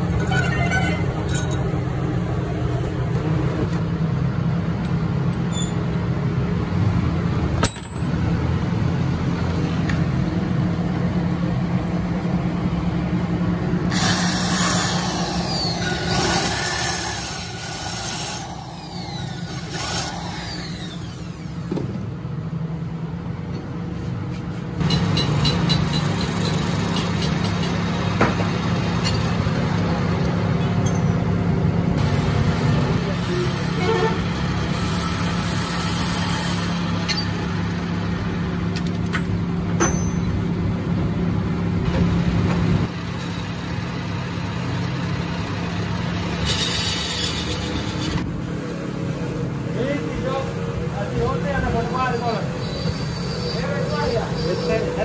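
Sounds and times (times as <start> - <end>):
machine motors humming: 12.0 - 22.2
drill bit cutting into metal: 13.9 - 21.6
lathe running: 13.9 - 21.7.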